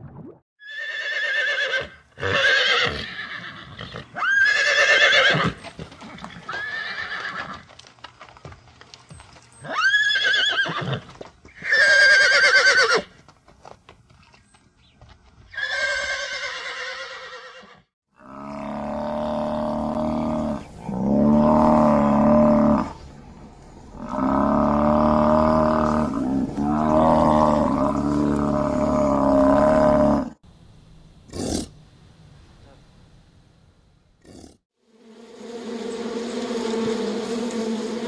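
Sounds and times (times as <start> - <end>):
horse whinnying: 0.6 - 5.6, 6.2 - 7.6, 9.6 - 13.1, 15.5 - 17.9.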